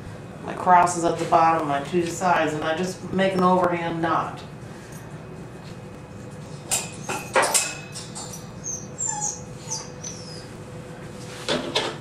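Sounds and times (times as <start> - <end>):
dog whimpering: 8.2 - 10.6.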